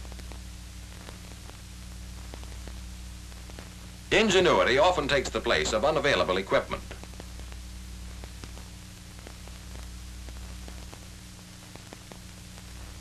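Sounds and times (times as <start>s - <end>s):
faint clicks and pops: 0.0s - 4.0s, 6.8s - 13.0s
film soundtrack hiss: 0.0s - 13.0s.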